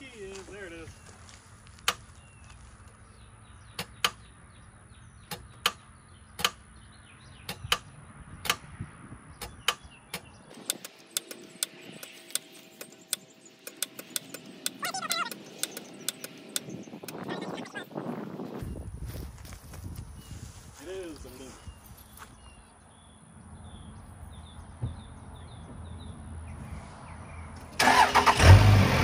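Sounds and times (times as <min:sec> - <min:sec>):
car starter clicking: 0:27.8 - 0:28.8.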